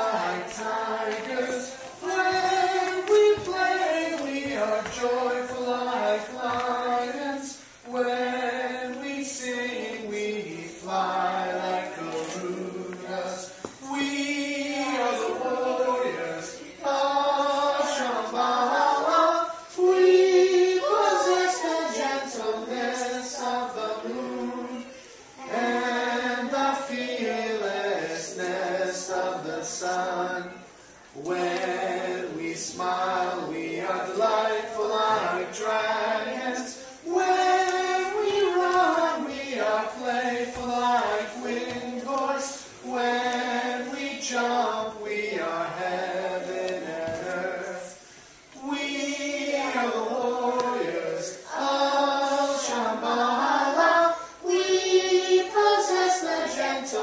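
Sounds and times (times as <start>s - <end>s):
children's chorus singing: 0.0s - 57.0s.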